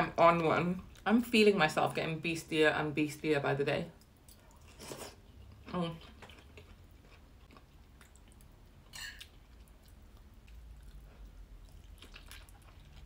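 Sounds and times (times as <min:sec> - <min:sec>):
person chewing food: 0:04.0 - 0:13.0.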